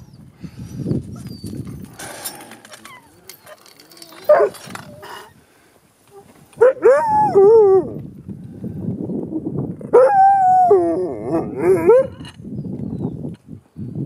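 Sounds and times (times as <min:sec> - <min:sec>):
dog howling: 0:06.1 - 0:08.0, 0:09.9 - 0:12.2.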